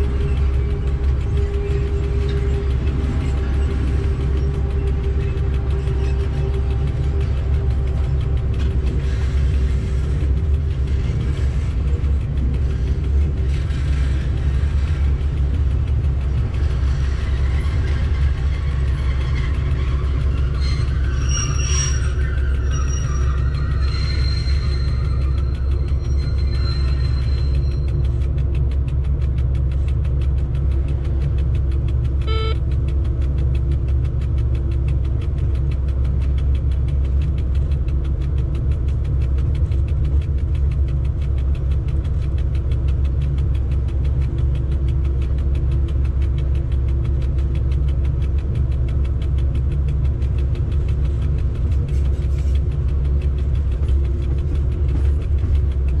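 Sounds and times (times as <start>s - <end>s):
locomotive cab rumble and hum: 0.0s - 56.0s
short beep: 32.2s - 32.6s.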